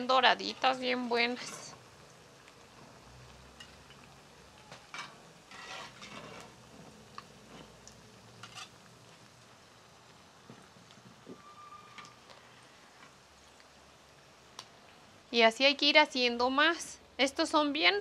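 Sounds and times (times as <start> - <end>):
patties frying in hot oil: 0.0 - 18.0
metal spatula scraping pot: 1.3 - 1.8, 4.9 - 6.6, 8.4 - 8.8.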